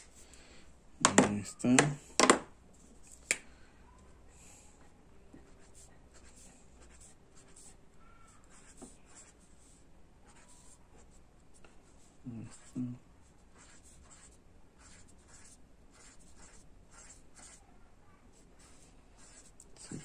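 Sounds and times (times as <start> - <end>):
marker scratching on paper: 5.4 - 12.8, 13.4 - 17.6, 18.3 - 20.0.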